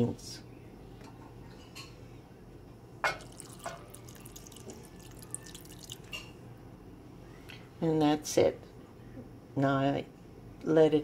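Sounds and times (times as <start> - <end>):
water trickling into pot: 3.1 - 6.3.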